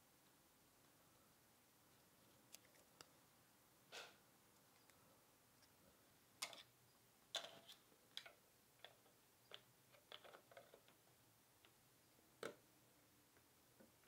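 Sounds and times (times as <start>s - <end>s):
plastic parts clicking and tapping: 6.4s - 6.7s, 7.3s - 11.0s.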